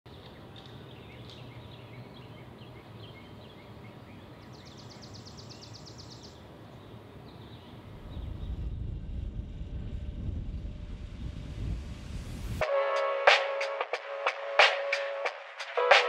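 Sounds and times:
small birds chirping: 0.1s - 8.7s
low background hum: 6.8s - 12.6s.

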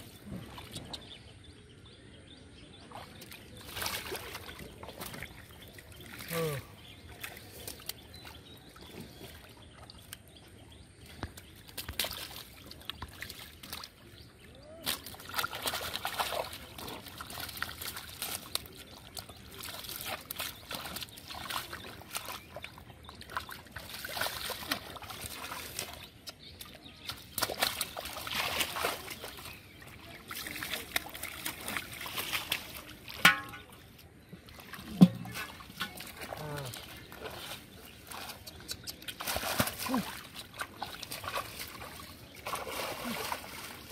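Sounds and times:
hands splashing in shallow water: 2.9s - 10.4s, 11.0s - 43.9s
fish knocking into metal pot: 33.2s - 33.7s, 34.9s - 36.0s.

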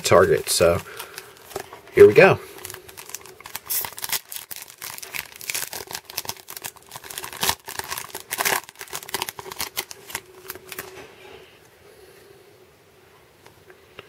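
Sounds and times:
foil wrapper crinkling and tearing: 0.0s - 11.0s.

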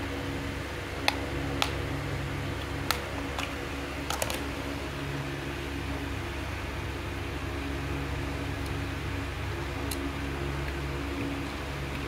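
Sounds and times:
steady low hum: 0.0s - 12.0s
plastic casing clicks: 2.8s - 4.4s.

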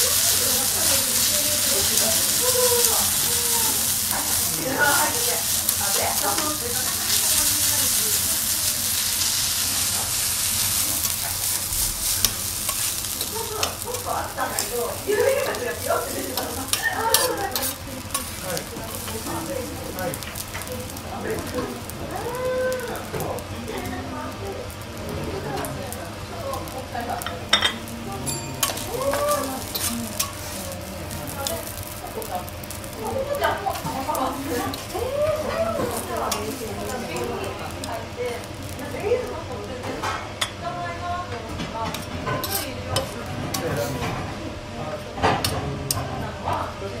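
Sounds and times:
rice sizzling on griddle: 0.0s - 47.0s
metal spatula scraping griddle: 8.8s - 19.5s, 41.8s - 44.2s.

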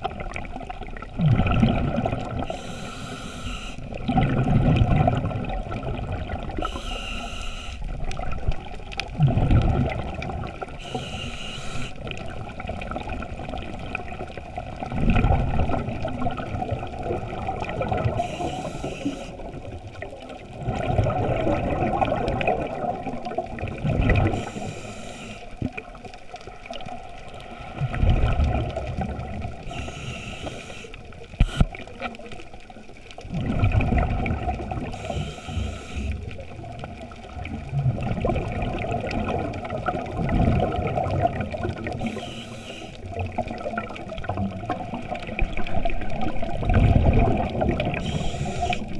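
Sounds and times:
bubbles rushing: 0.0s - 2.5s, 4.0s - 6.6s, 8.2s - 10.8s, 12.2s - 18.2s, 19.4s - 24.4s, 27.8s - 29.6s, 33.2s - 35.0s, 36.4s - 42.1s, 43.0s - 48.1s
regulator inhale hiss: 2.4s - 4.0s, 6.6s - 7.9s, 10.8s - 12.1s, 18.0s - 19.6s, 24.3s - 25.6s, 29.6s - 32.0s, 34.9s - 36.4s, 41.9s - 43.2s, 47.9s - 48.9s.

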